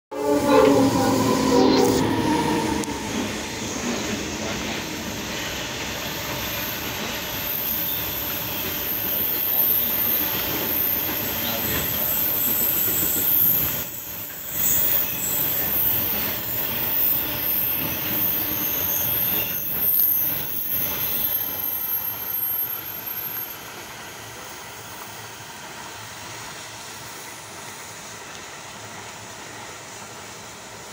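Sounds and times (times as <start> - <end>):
train wagons rumbling and clattering: 0.1 - 24.5.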